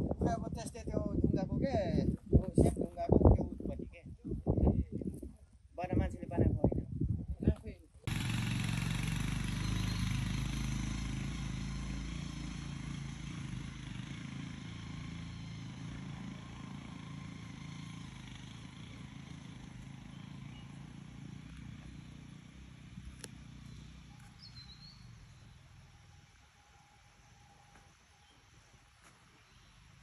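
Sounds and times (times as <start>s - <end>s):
motorcycle engine running: 8.1s - 28.9s.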